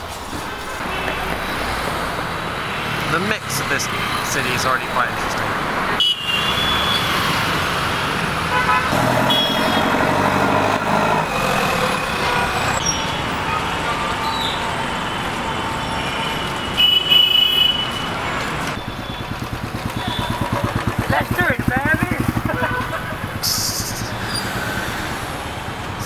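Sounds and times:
vehicles running past: 0.0s - 26.0s
horns honking: 5.9s - 7.4s, 8.4s - 24.4s.

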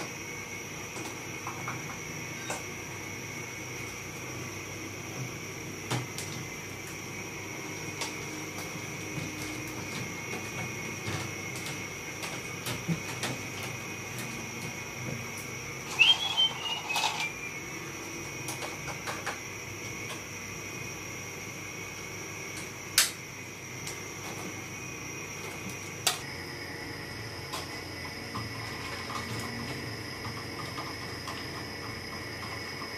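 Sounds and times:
whirring hum with high whine: 0.0s - 32.9s
plastic rattle and squeak: 15.9s - 17.5s.

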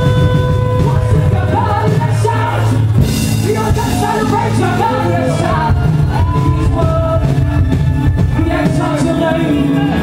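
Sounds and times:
saxophone melody: 0.0s - 2.7s
bass: 0.0s - 10.0s
drums: 0.0s - 10.0s.

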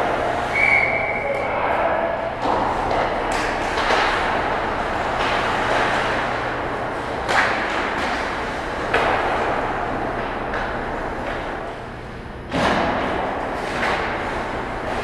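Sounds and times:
skates scraping on ice: 2.4s - 11.6s.

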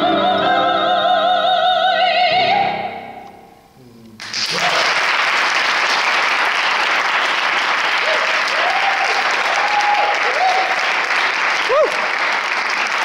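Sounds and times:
woman singing with vibrato: 0.0s - 3.3s
audience applause: 4.2s - 13.0s.

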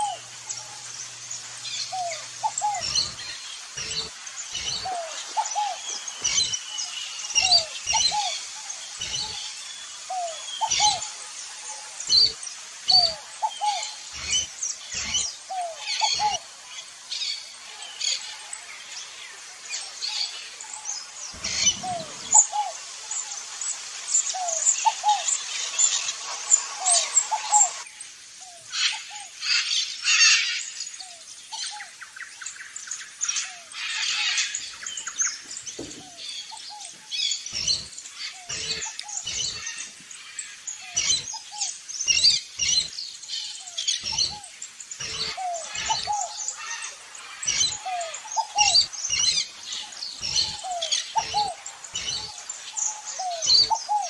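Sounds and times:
background hiss: 0.0s - 54.0s
birds chirping: 0.0s - 54.0s
dull knocks: 35.8s - 36.2s.

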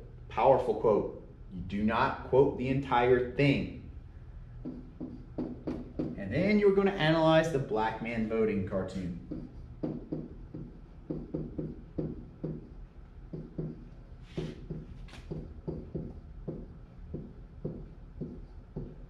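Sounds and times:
pen tapping on whiteboard: 4.6s - 6.2s, 9.2s - 19.0s
pen swishes on whiteboard: 13.6s - 15.6s.

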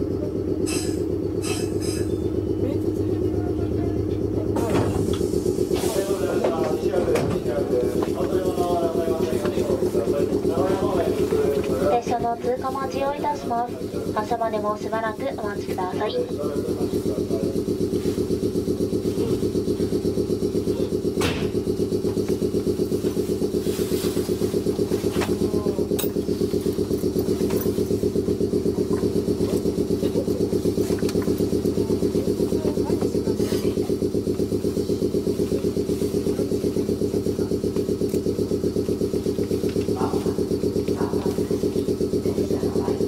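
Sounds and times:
air compressor chugging: 0.0s - 43.0s.

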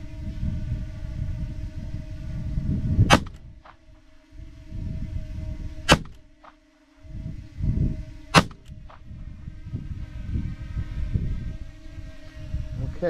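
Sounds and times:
revolver shots: 3.1s - 3.4s, 5.9s - 6.2s, 8.4s - 8.7s.

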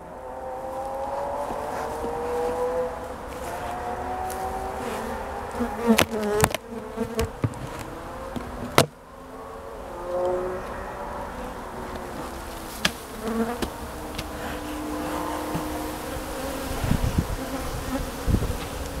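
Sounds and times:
honey bees buzzing: 0.0s - 19.0s
low bumps: 0.7s - 9.2s
hive cover cracking: 5.7s - 9.0s.

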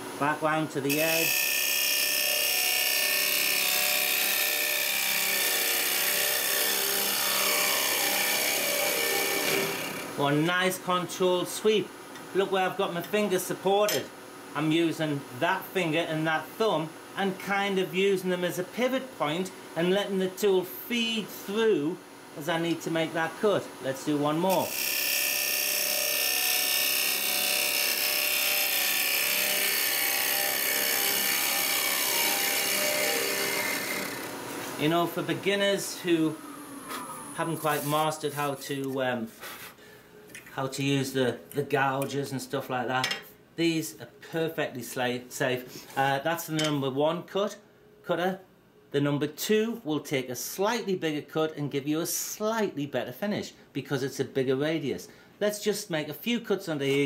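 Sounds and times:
lathe tool cutting wood: 1.0s - 10.1s, 24.6s - 34.4s
scraping hiss of wood cutting: 36.4s - 38.2s, 39.4s - 39.8s.

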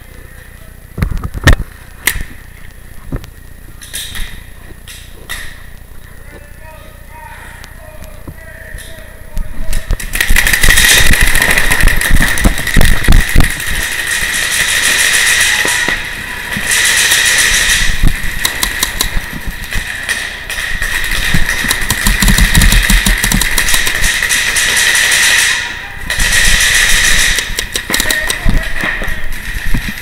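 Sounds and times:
paintball markers firing: 9.7s - 29.1s.

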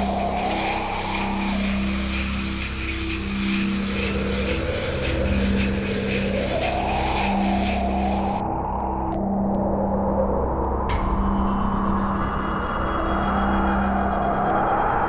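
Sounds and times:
high hiss: 0.0s - 8.4s
whooshing swell: 0.0s - 8.8s
pulsing low droning hum: 0.0s - 15.0s.

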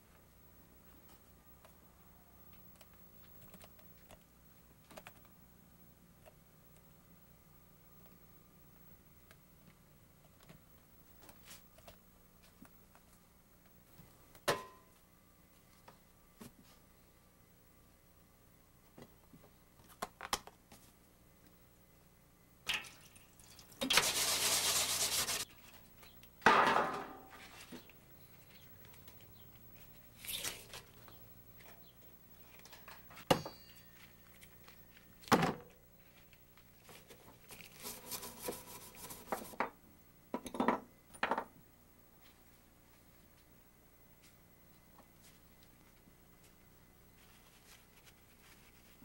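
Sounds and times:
steady hiss: 23.0s - 26.4s
rubbing by hand: 24.0s - 25.5s
metal tray knocking and clattering: 26.5s - 27.3s.

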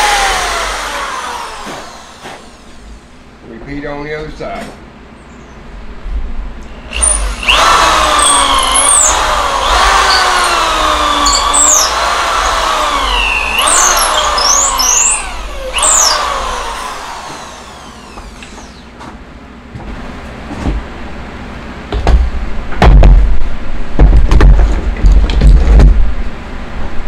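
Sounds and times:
electric drill boring wood: 0.0s - 2.8s, 6.8s - 18.9s.

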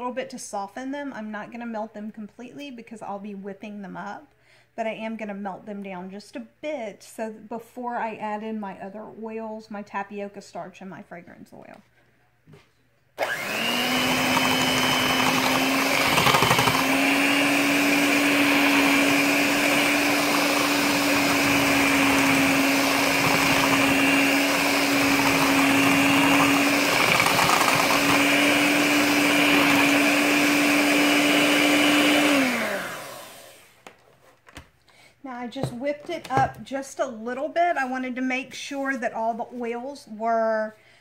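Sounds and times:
electric whisk motor whine: 13.2s - 33.8s.

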